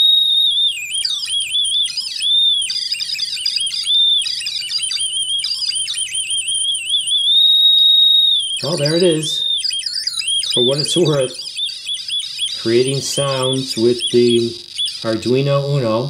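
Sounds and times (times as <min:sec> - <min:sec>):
high-pitched swooping electronic tone: 0:08.4 - 0:15.6.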